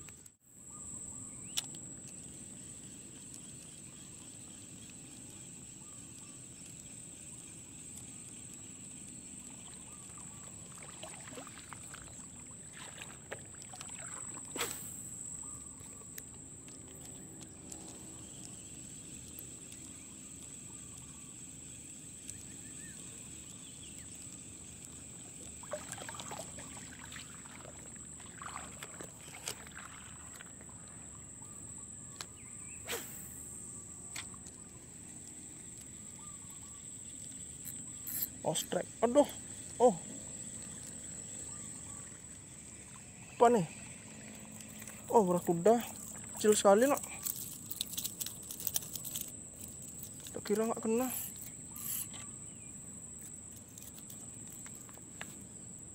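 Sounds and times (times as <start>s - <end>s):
light water noise: 0.0s - 55.8s
high-pitched insect drone: 0.6s - 55.8s
fishing reel clicks and knocks: 37.6s - 38.4s, 51.0s - 52.2s.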